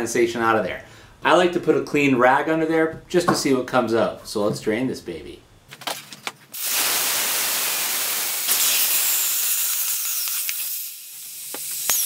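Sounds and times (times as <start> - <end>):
compressed air hissing: 6.5 - 12.0.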